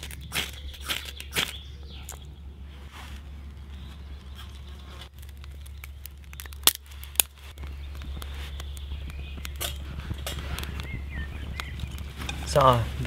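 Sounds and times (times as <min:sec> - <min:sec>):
wood fire crackling: 0:00.0 - 0:13.0
sharp fire pops: 0:05.0 - 0:12.8.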